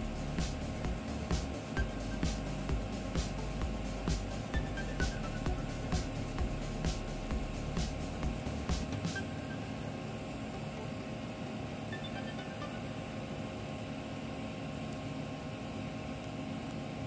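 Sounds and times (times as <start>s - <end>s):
welding arc hiss and hum: 0.0s - 11.9s.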